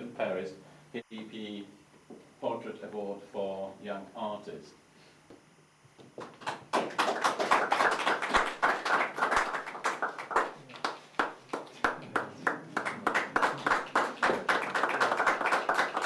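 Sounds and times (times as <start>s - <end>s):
crowd applauding: 6.2s - 16.0s.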